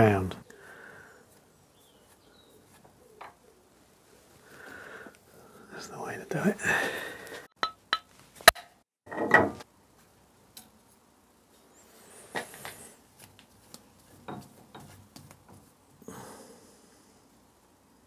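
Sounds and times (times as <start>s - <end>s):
rustling: 0.5s - 5.4s.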